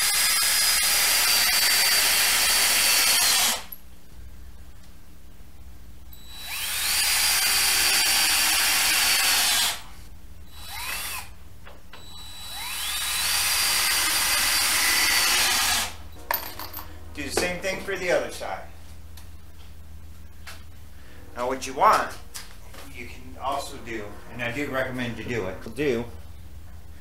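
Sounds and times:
cordless drill whining: 0:00.0 - 0:03.7, 0:06.2 - 0:09.9, 0:10.5 - 0:11.4, 0:12.0 - 0:16.0.

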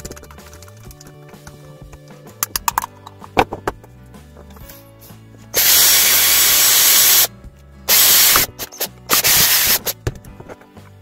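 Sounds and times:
quiet background music: 0:00.0 - 0:11.0
hissing tool bursts: 0:05.6 - 0:07.3, 0:07.9 - 0:10.0.

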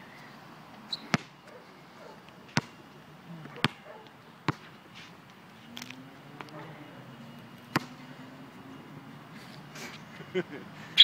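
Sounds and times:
basketball bouncing on concrete: 0:01.1 - 0:01.3, 0:02.5 - 0:02.8, 0:03.4 - 0:04.7.

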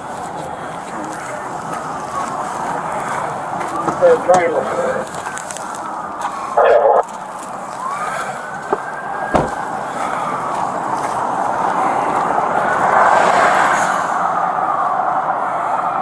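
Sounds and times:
highway traffic passing: 0:00.0 - 0:16.0
car door shutting: 0:08.7 - 0:09.9.

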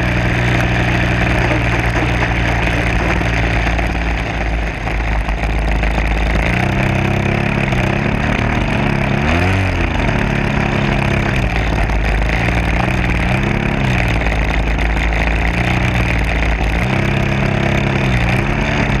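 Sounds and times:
model plane engine running: 0:00.0 - 0:19.0.

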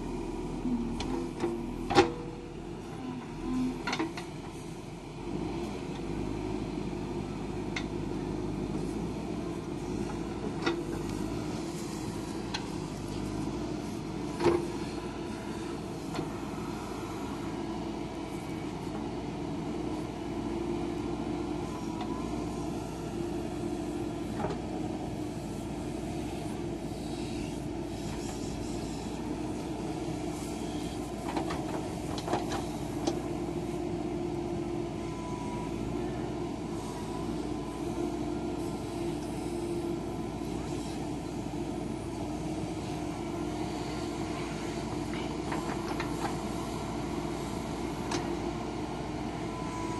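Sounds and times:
diesel engine running: 0:00.0 - 0:49.9
backhoe digging soil: 0:00.1 - 0:49.9.

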